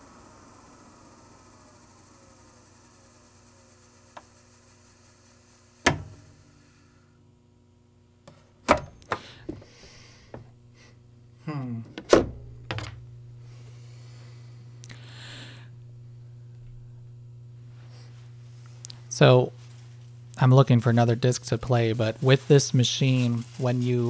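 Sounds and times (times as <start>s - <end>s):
disc spinning down whine: 0.0s - 6.7s, 10.2s - 24.0s
disc scraping and thumping: 5.8s - 6.4s, 11.9s - 13.2s.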